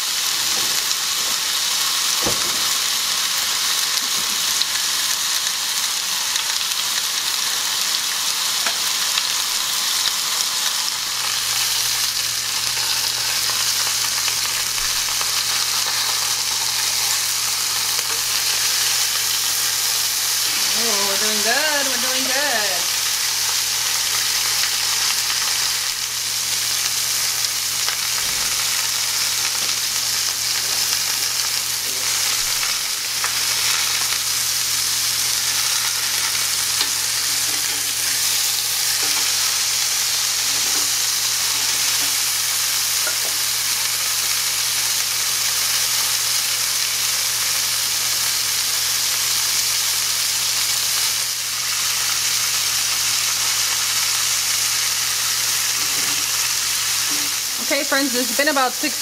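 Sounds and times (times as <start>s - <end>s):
steak sizzling in a skillet: 0.0s - 59.0s.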